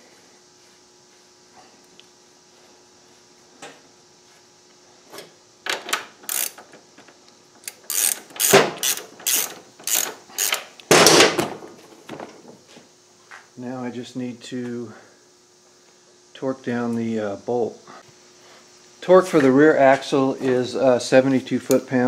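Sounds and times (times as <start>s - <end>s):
ratchet wrench clicking: 6.3s - 6.6s, 7.6s - 10.6s.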